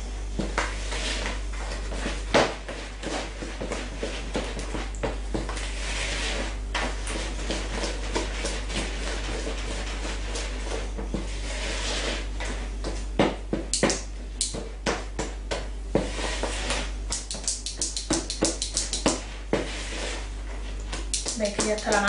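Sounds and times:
steady low hum: 0.0 - 22.0
batter stirred in plastic bowl: 0.3 - 22.0
utensil tapping against bowl: 17.1 - 19.2, 21.0 - 22.0.

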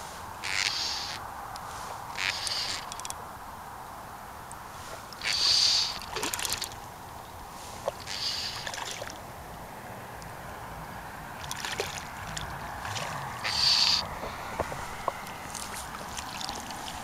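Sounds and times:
water lapping: 4.6 - 9.4, 10.3 - 17.0
fly line swishing: 11.4 - 17.0.

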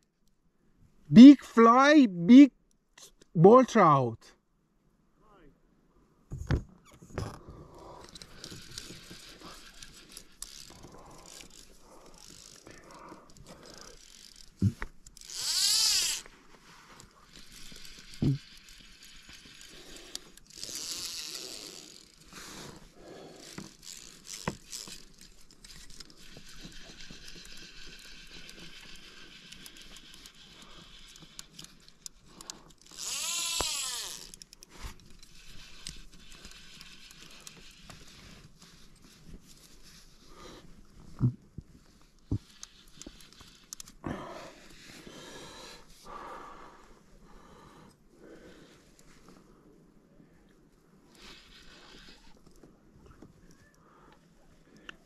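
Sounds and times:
line scraping on spool: 7.3 - 40.8, 42.2 - 44.0, 51.1 - 53.6
fly reel ratchet clicks: 8.0 - 12.7, 13.3 - 16.3, 17.3 - 22.2, 23.4 - 38.0
person breathing hard through nose: 10.6 - 14.4, 22.2 - 23.8, 44.0 - 49.7.

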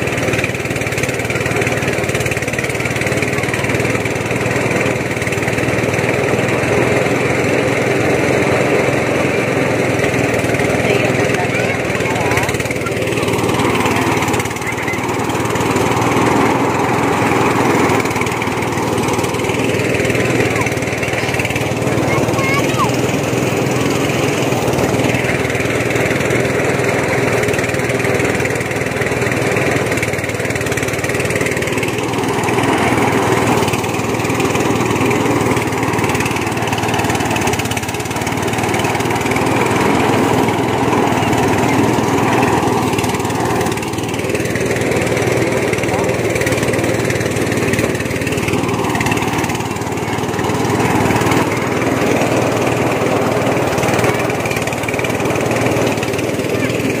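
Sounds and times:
harvesting machine engine running: 0.0 - 57.0.

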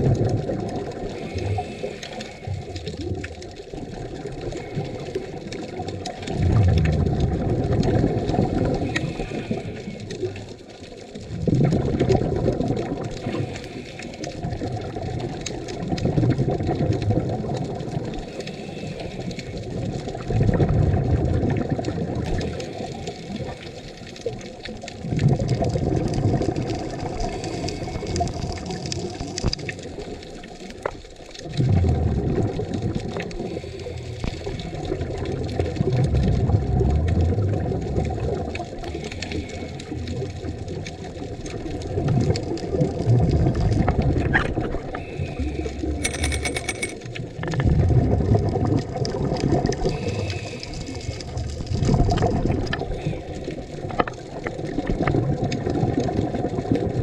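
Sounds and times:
underwater bubbling exhalation: 0.0 - 46.0, 47.0 - 57.0
watery hiss: 1.0 - 2.9, 8.6 - 10.4, 49.8 - 51.4.

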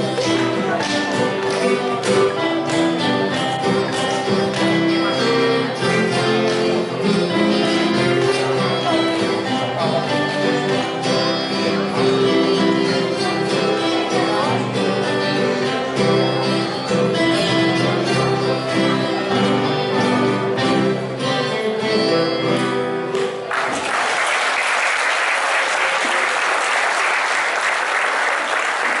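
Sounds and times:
acoustic guitars playing: 0.0 - 23.5
audience applause: 23.3 - 29.0.

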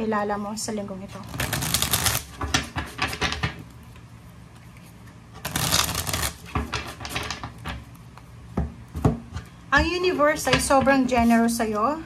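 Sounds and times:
cards being shuffled: 1.2 - 3.4, 4.5 - 7.8.

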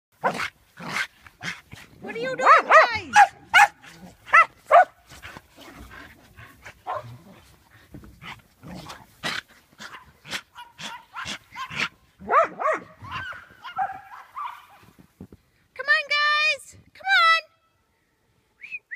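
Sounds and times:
dogs barking and yipping: 0.2 - 5.9, 6.5 - 7.6, 9.3 - 14.9.

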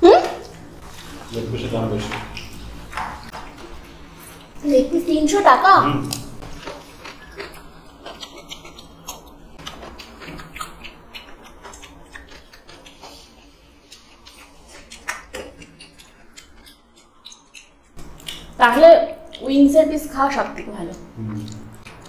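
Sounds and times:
people chewing: 0.0 - 22.0
fingers mixing food on steel plates: 0.2 - 22.0
mouth clicks and smacks: 6.0 - 13.2, 13.8 - 19.6, 20.9 - 22.0.

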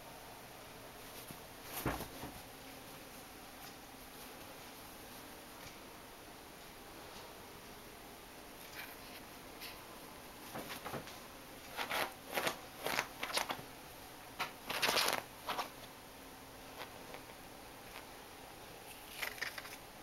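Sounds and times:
bedsheets rustling: 0.9 - 3.4, 10.3 - 13.6.

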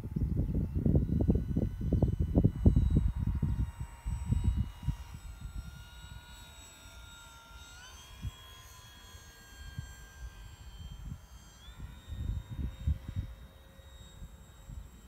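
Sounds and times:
wind buffeting microphone: 0.0 - 6.0, 11.8 - 13.5
model plane motor whining: 0.0 - 15.0.

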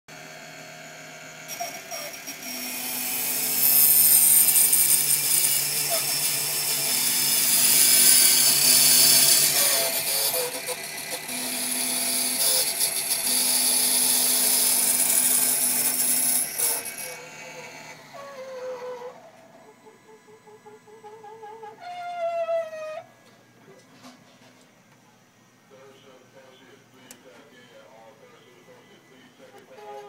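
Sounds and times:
steady motor hum: 0.1 - 21.8
high-pitched grinding of key cutter: 1.4 - 19.2.

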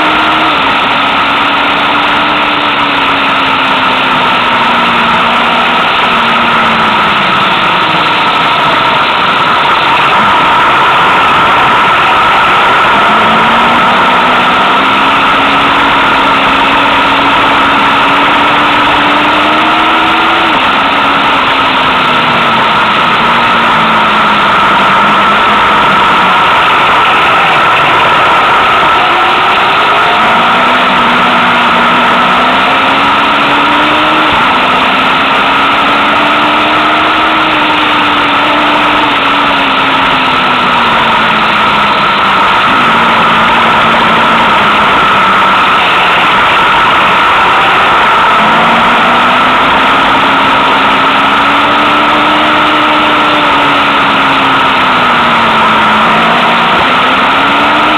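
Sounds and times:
motorcycle engine: 0.0 - 57.9.

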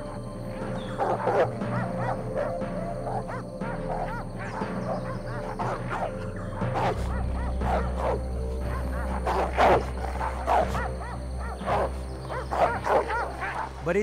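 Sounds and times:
background music with low drone: 0.0 - 14.0
dog barking and yelping: 0.6 - 13.8.

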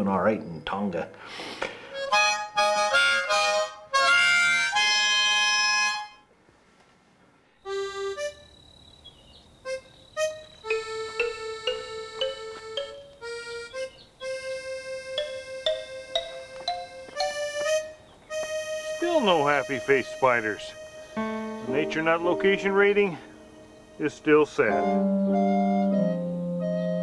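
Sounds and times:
harmonica chords: 1.8 - 6.3, 7.6 - 8.6, 9.6 - 27.0
light instrumental music: 2.0 - 6.2, 10.2 - 27.0.

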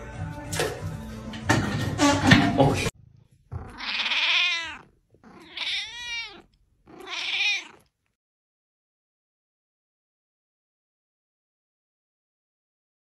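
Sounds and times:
cat meowing: 3.5 - 8.0.

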